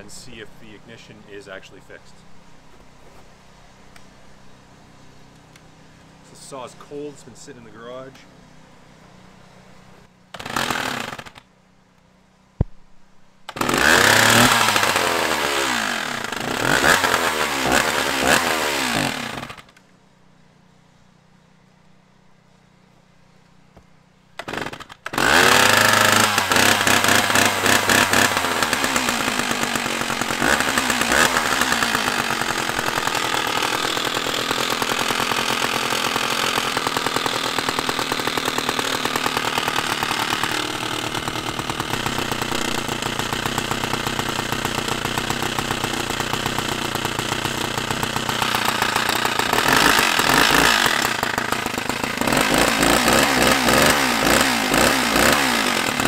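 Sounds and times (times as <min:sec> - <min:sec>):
chainsaw running: 0:09.8 - 0:12.1, 0:13.4 - 0:19.8, 0:24.3 - 0:56.0.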